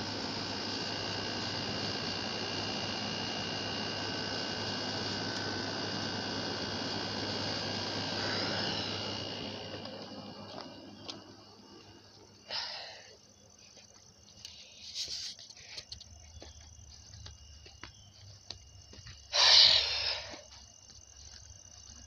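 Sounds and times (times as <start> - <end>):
faint high insect drone: 0.0 - 22.0
person breathing out heavily: 12.4 - 13.2, 19.3 - 20.5.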